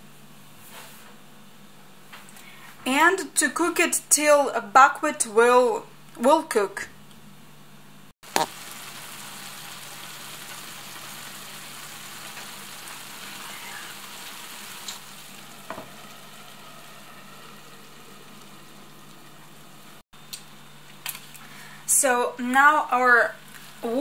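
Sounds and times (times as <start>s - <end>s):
food sizzling in a frying pan: 8.2s - 20.0s.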